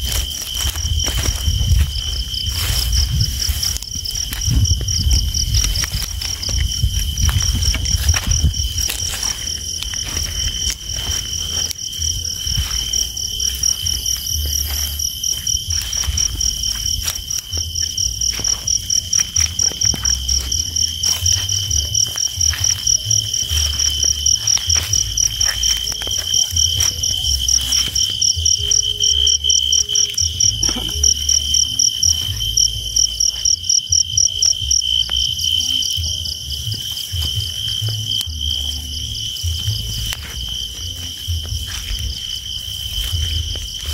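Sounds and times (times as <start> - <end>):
low rumble: 0.0 - 33.2
crickets chirping: 0.0 - 43.9.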